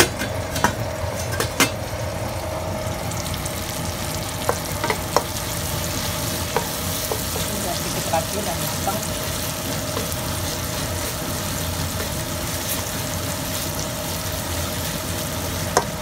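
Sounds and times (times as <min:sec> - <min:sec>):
vegetables sizzling in oil: 0:00.0 - 0:16.0
wooden spatula knocking on pan: 0:04.4 - 0:05.4, 0:15.7 - 0:16.0.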